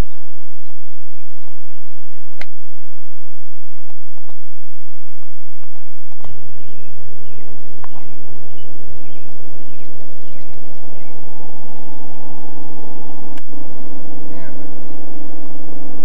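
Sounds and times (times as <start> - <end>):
bird chirps: 0.0 - 2.2, 5.7 - 15.4
low hum: 0.0 - 16.0.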